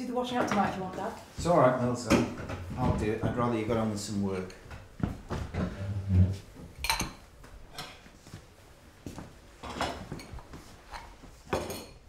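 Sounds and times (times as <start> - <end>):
crockery and cutlery clinking: 4.0 - 4.8, 6.8 - 8.1, 9.6 - 12.0.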